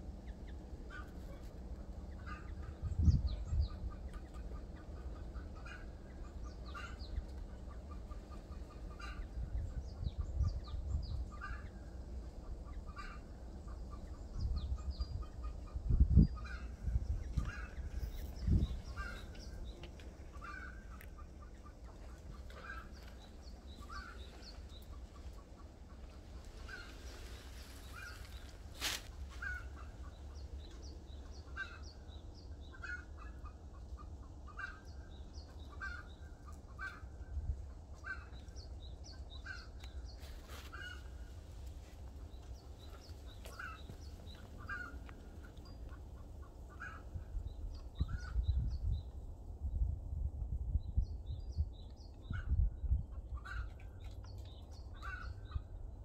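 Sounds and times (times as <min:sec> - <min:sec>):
low rumble of wind: 0:00.0 - 0:56.0
fowl-like bird calls: 0:02.1 - 0:02.8, 0:03.9 - 0:09.4, 0:12.6 - 0:13.4, 0:16.4 - 0:30.2, 0:31.4 - 0:31.9, 0:39.4 - 0:41.4, 0:42.8 - 0:47.3, 0:55.0 - 0:55.7.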